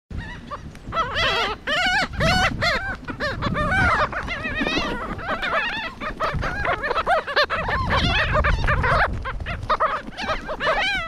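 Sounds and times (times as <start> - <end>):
gulls calling: 0.1 - 11.0.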